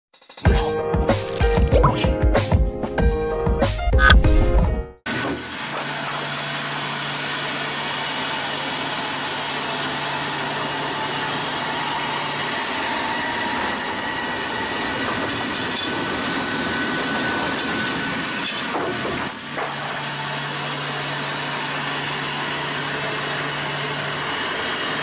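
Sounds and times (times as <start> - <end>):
sawmill saw cutting log: 5.1 - 25.0.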